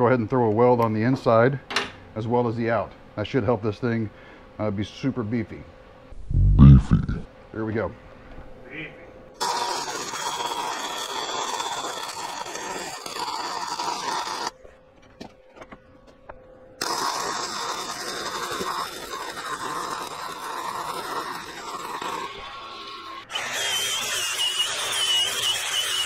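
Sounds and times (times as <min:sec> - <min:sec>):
welding arc crackling: 0:09.4 - 0:14.5, 0:16.8 - 0:26.0.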